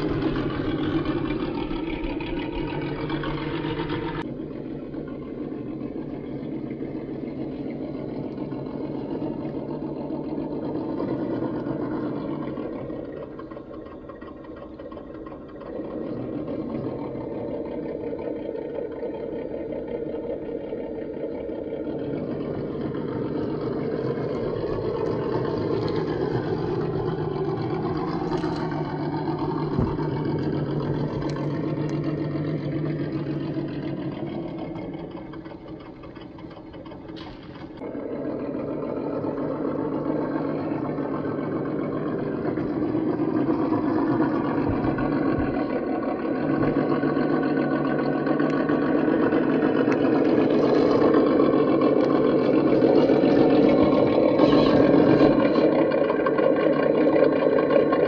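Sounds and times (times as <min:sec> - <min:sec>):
electric motor and gears whining: 0:00.0 - 0:58.0.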